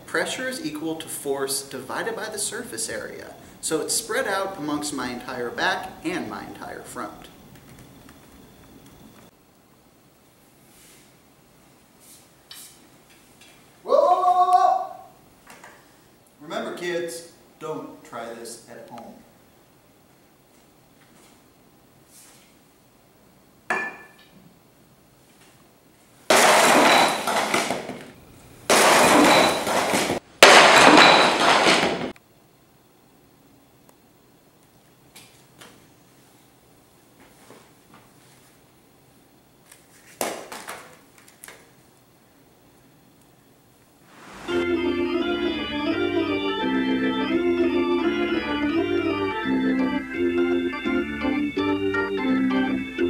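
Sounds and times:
sledgehammer smashing cinder block: 26.3 - 28.0, 28.7 - 32.1
rubble scattering: 26.3 - 28.1, 28.7 - 32.1
organ music: 44.4 - 53.0.

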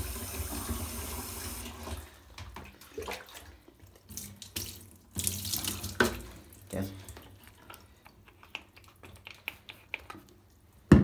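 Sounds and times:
water splashes: 1.6 - 7.7.

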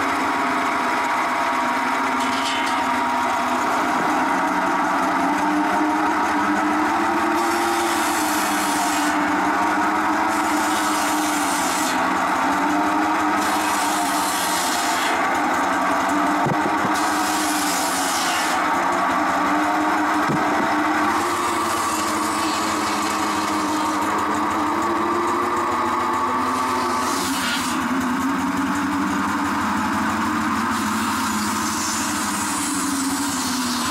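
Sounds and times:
circular saw blade humming: 0.0 - 33.9
small engine running: 0.0 - 33.9
saw cutting logs rasping hiss: 5.2 - 19.9, 20.7 - 28.3, 30.5 - 33.9.

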